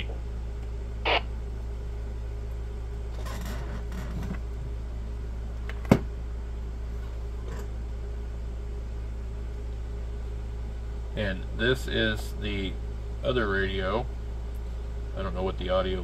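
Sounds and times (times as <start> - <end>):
steady low hum: 0.0 - 16.0
short burst of radio sound: 1.1 - 1.3.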